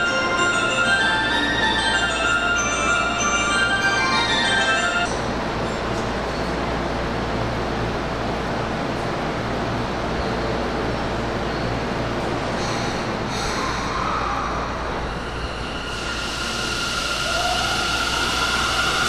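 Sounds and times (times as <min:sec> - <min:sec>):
steady high tones: 0:00.0 - 0:05.2, 0:14.6 - 0:19.0
subway train rolling: 0:00.0 - 0:19.0
rising and falling whine: 0:14.0 - 0:19.0.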